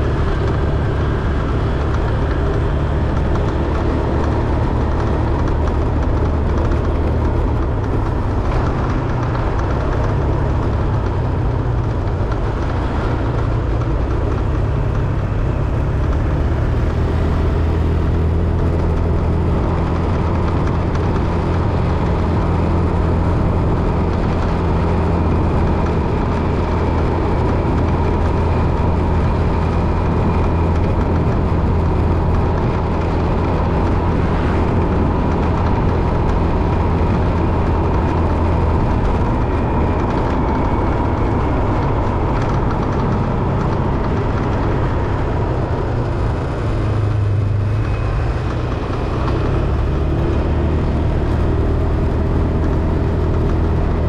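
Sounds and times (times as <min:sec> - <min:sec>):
road noise: 0:00.0 - 0:54.0
vehicle engine drone: 0:00.0 - 0:54.0.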